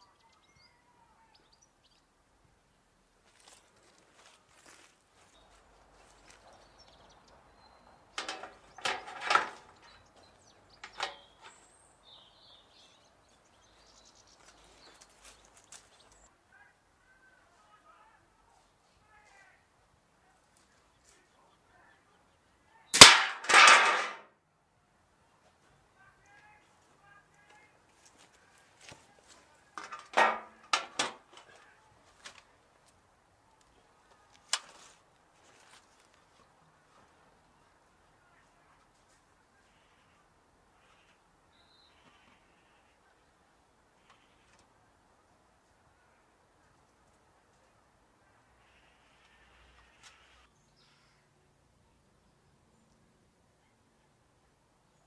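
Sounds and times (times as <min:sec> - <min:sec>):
metal oven trays clattering: 0:08.2 - 0:09.9
metal baking trays clattering: 0:08.2 - 0:10.0, 0:10.8 - 0:11.6, 0:23.0 - 0:24.2, 0:29.8 - 0:31.2
sharp metal clank: 0:23.0 - 0:24.2.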